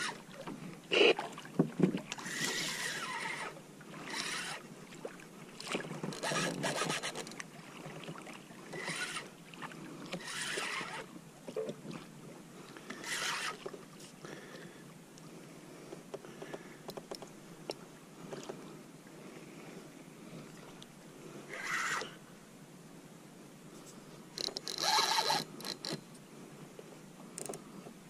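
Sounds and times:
water lapping against hull: 0.0 - 22.3
gear knocking and rubbing: 6.1 - 7.3.

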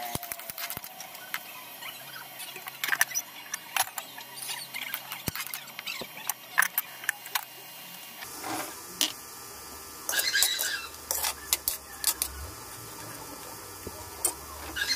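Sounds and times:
spatula scraping a wok: 8.2 - 8.8, 10.1 - 13.2.

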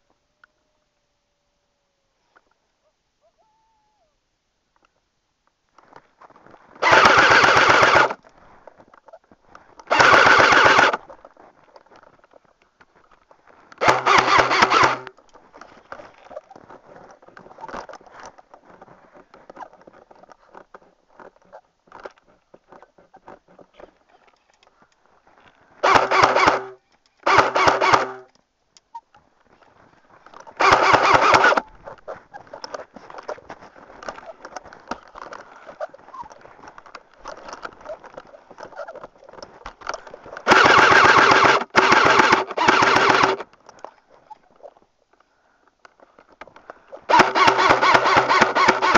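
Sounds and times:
faint ticks and rustling: 4.6 - 6.8, 8.2 - 9.9, 11.0 - 13.8, 15.1 - 25.8, 31.6 - 40.5, 43.4 - 47.1
airsoft gun firing bursts: 6.8 - 8.2, 9.9 - 11.0, 13.8 - 15.1, 25.8 - 28.3, 30.6 - 31.6, 40.5 - 43.4, 47.1 - 48.9
gun motor hum: 6.8 - 8.2, 9.9 - 11.1, 13.8 - 15.2, 25.8 - 28.3, 30.6 - 31.7, 40.4 - 43.5, 47.1 - 48.9.

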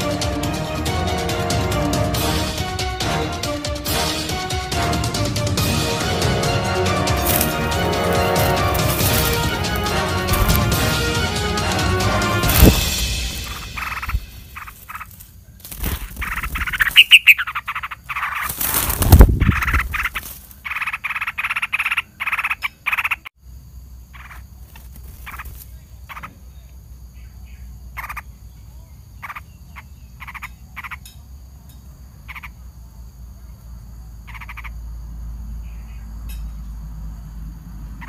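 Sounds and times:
harsh rattling animal calls: 6.1 - 23.3, 24.0 - 28.5, 29.1 - 31.2, 32.1 - 32.7, 34.2 - 34.9.

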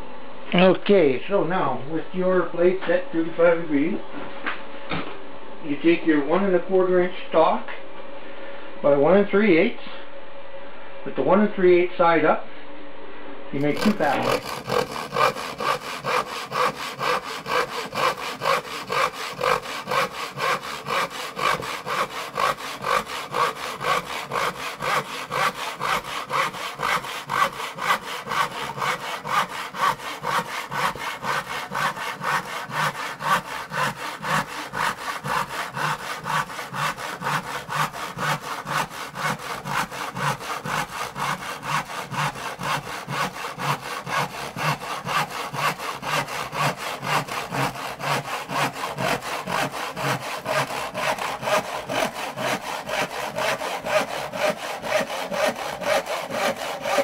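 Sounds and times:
saw cutting wood: 13.6 - 57.0.

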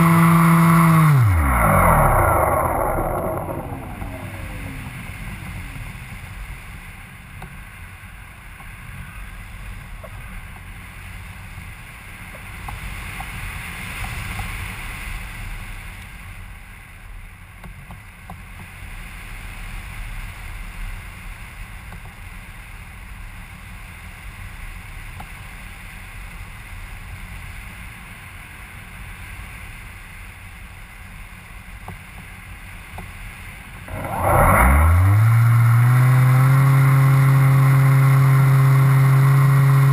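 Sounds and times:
motor starting up: 0.0 - 6.4, 33.9 - 39.9
wind rushing over microphone: 1.0 - 7.2.

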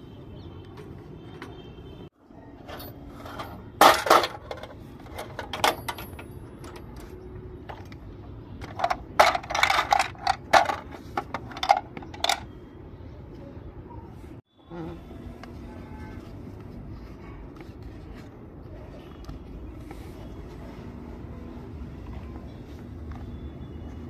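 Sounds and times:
plastic toy pieces clacking: 8.6 - 12.5.

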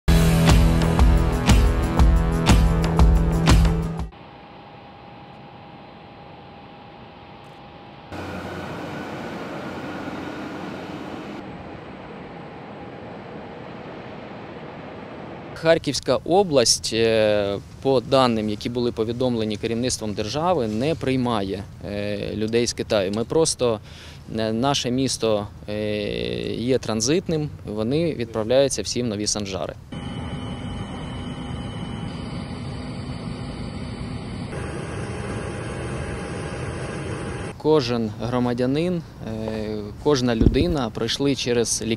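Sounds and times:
faint engine hum: 4.1 - 16.0
rushing airfield noise: 8.1 - 15.6
engine rumble with hiss: 8.1 - 29.0
steady tones: 40.4 - 41.0.

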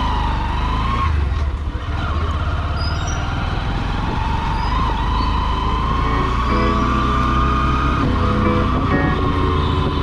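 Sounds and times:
motorcycle engine rumble: 0.0 - 10.0.

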